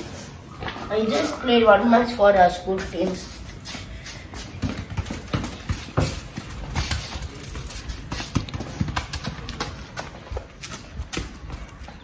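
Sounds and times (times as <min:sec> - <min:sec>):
foot thumping football: 0:04.3 - 0:12.0.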